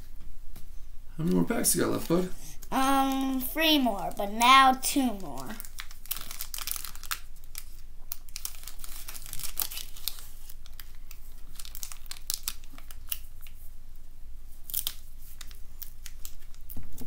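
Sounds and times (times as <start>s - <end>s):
plastic foil wrapper crinkling: 1.7s - 3.8s, 5.3s - 13.6s, 14.6s - 17.0s.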